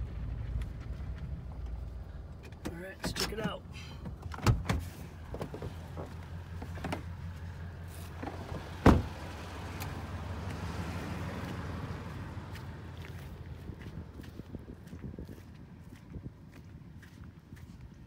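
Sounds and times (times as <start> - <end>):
truck engine idling: 0.0 - 10.5.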